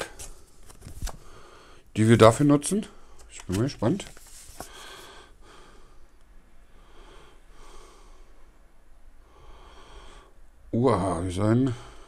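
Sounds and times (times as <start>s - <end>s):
person breathing through nose: 4.6s - 6.1s.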